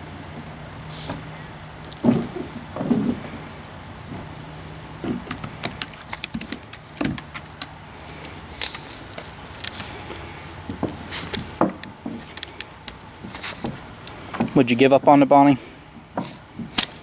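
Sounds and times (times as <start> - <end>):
dog gnawing bone: 4.0 - 14.6
bone knocking on wooden boards: 11.6 - 12.7.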